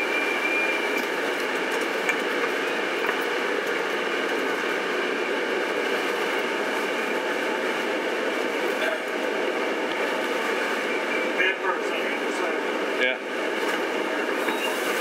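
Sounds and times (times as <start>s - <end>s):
bus running noise: 0.0s - 15.0s
faint high whistle: 14.4s - 14.8s.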